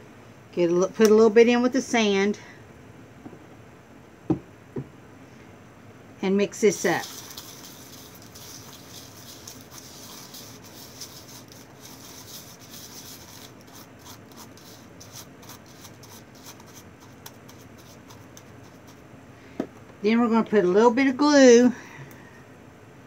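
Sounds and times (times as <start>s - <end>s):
paintbrush scraping gritty sand: 6.7s - 19.0s.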